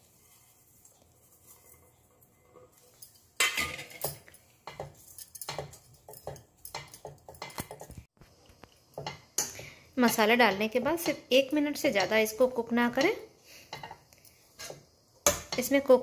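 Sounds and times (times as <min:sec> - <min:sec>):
metal spatula scraping a pan: 0:09.0 - 0:15.7.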